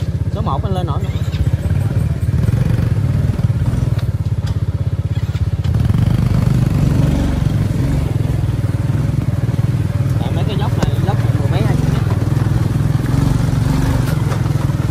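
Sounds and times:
motorcycle engine running: 0.0s - 14.9s
clatter and knocks: 13.9s - 14.9s.

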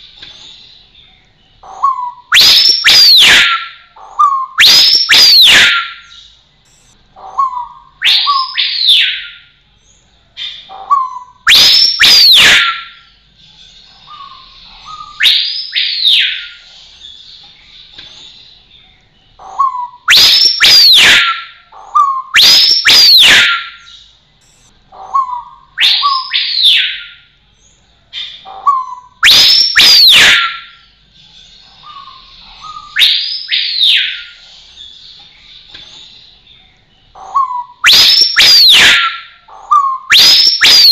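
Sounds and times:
bird whistling calls: 1.6s - 9.5s, 10.4s - 13.1s, 14.1s - 16.6s, 19.4s - 27.3s, 28.2s - 30.9s, 31.8s - 34.4s, 37.2s - 40.9s.

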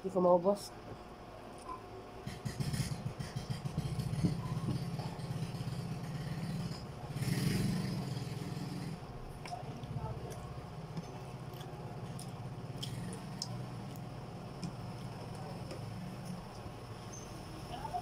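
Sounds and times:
small engine running: 2.3s - 9.0s.

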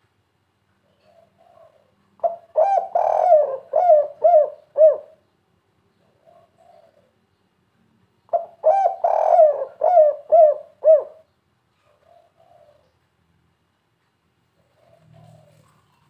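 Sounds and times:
dove cooing: 0.9s - 5.2s, 6.0s - 7.2s, 8.3s - 13.0s, 14.6s - 16.0s.

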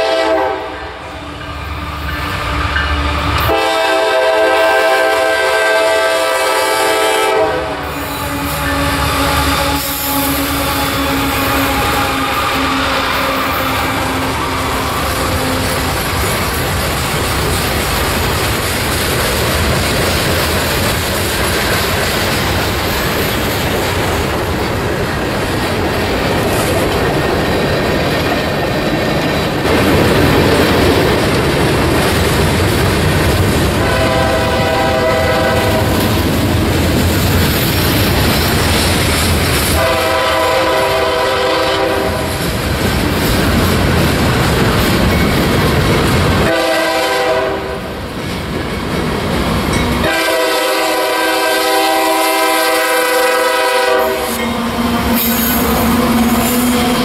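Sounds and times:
locomotive air horn: 0.0s - 16.0s, 33.8s - 36.1s, 39.8s - 42.4s, 46.4s - 47.9s, 50.0s - 57.0s
train wheels clickety-clack: 1.4s - 57.0s.

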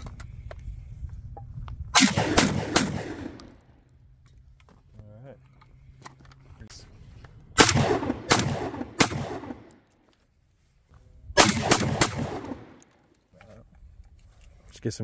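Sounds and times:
shotgun shots with echo: 2.0s - 3.6s, 7.6s - 9.7s, 11.4s - 12.8s.

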